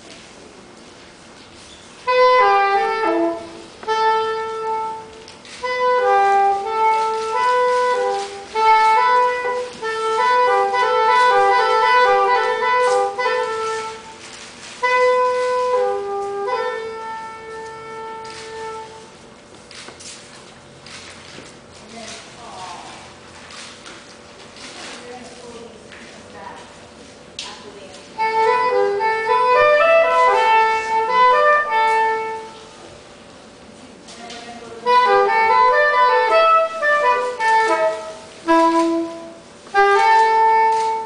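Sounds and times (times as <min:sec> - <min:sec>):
solo woodwind melody: 0:02.0 - 0:19.3, 0:28.2 - 0:33.0, 0:34.8 - 0:41.0.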